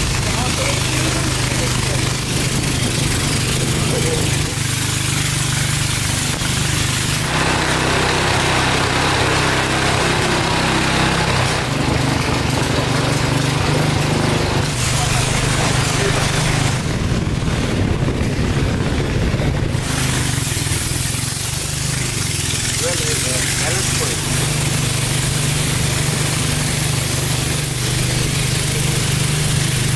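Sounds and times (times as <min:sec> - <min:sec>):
boat engine running: 0:00.0 - 0:29.9
rushing water: 0:00.0 - 0:29.9
wind noise: 0:16.6 - 0:20.9.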